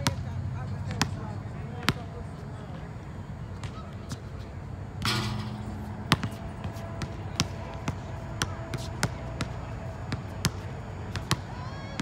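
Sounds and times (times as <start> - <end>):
basketball bouncing on concrete: 0.8 - 2.1, 5.0 - 12.0.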